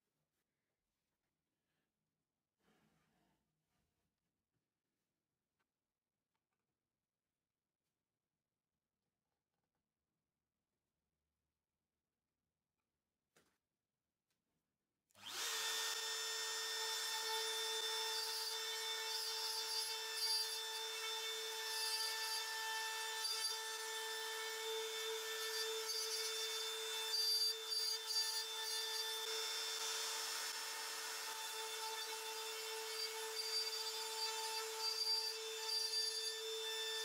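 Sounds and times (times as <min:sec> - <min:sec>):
router bit cutting plywood: 0:15.2 - 0:37.0
router whining: 0:15.2 - 0:37.0.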